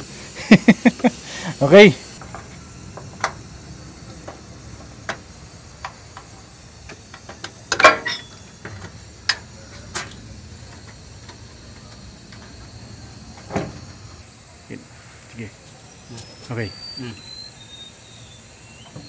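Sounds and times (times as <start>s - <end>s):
metal clatter: 6.9s - 12.6s.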